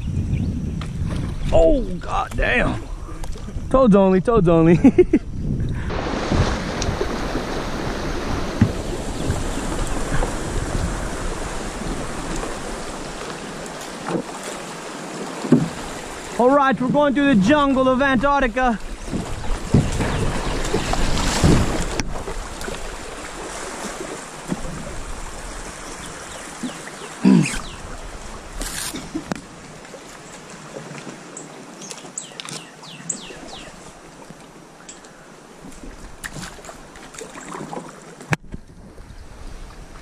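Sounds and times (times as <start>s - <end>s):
water splashing around kayak hull: 5.7s - 40.0s
paddle strokes: 5.8s - 40.0s
branches scraping: 27.6s - 29.6s.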